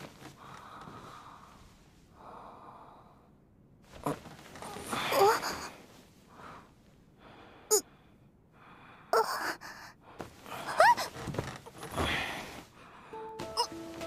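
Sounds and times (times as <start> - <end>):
girl breathing: 4.7 - 11.1.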